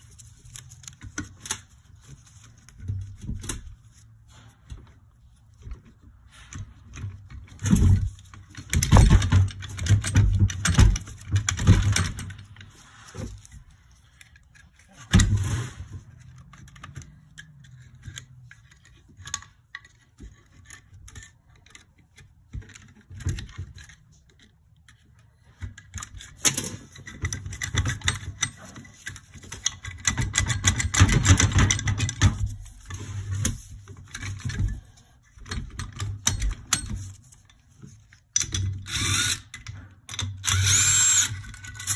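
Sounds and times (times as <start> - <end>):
metal hand tools clicking and clattering: 25.7 - 32.5.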